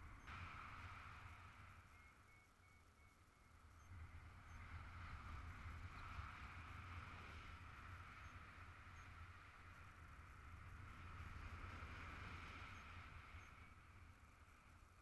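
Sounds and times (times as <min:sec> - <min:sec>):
muffled wind rush: 0:00.0 - 0:15.0.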